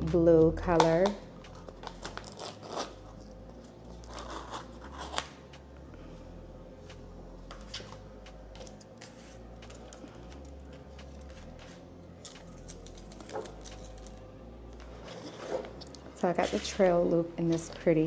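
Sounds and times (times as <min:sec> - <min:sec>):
paper and fabric rustling: 0:15.0 - 0:17.8.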